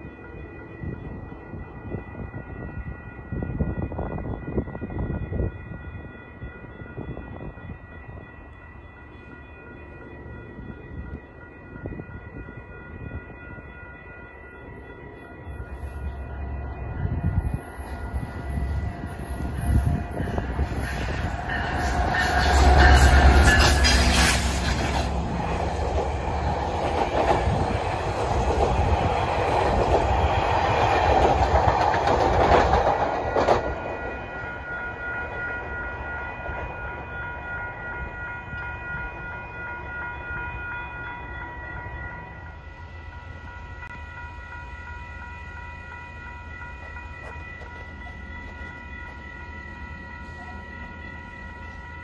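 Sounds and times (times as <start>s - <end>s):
faint steady high tones: 0.0s - 31.2s
train rushing past: 9.9s - 52.0s
wheels clattering on rails: 18.6s - 34.2s.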